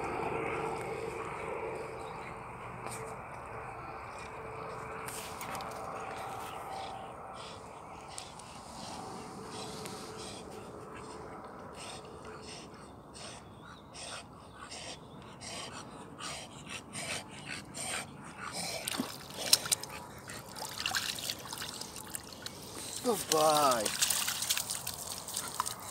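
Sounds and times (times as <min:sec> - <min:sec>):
dog breathing: 0:03.8 - 0:23.8
dog splashing in water: 0:18.8 - 0:25.9.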